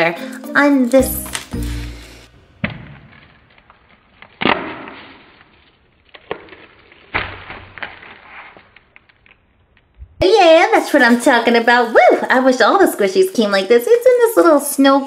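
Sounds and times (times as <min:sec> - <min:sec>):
crinkly cellophane rustling: 0:03.0 - 0:09.9.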